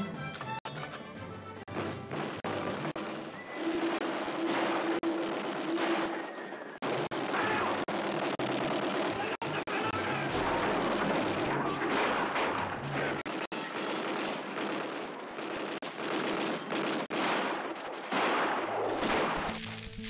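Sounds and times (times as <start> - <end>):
film music: 0.0 - 3.4
dense gunfire: 3.6 - 20.0.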